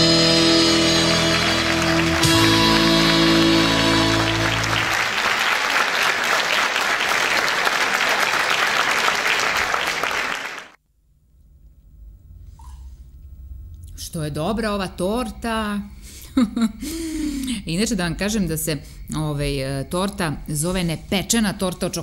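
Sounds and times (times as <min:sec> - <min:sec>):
folk music ensemble: 0:00.0 - 0:04.9
audience applause: 0:00.7 - 0:10.8.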